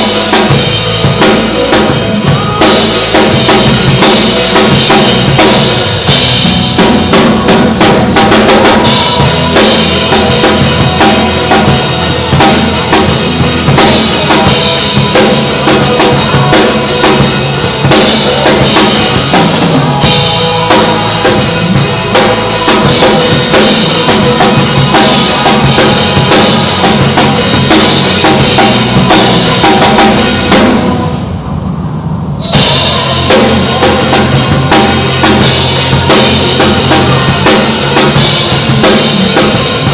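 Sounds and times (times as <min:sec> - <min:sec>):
pop song backing track: 0:00.0 - 0:31.3, 0:32.4 - 0:39.9
drum kit played hard: 0:00.0 - 0:39.9.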